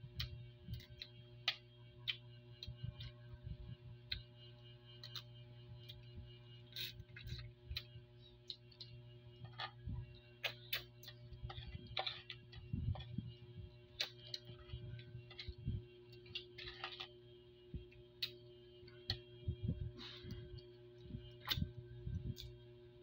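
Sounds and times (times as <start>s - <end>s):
low hum: 0.0s - 23.0s.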